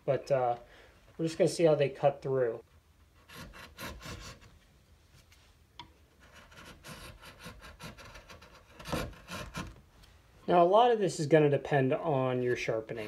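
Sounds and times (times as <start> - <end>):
chisel paring wood: 6.3 - 9.8.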